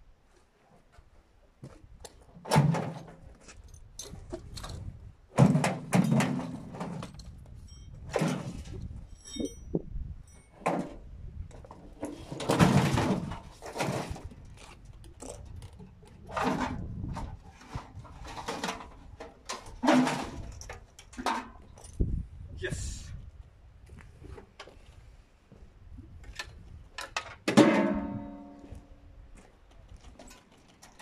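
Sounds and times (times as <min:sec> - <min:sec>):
metallic clanks and rattles: 0:02.4 - 0:22.1.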